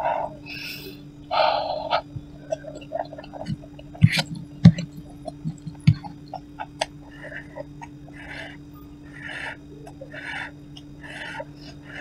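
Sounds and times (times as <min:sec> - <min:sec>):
low electrical hum: 0:00.0 - 0:12.0
noodles being chewed: 0:02.4 - 0:08.5.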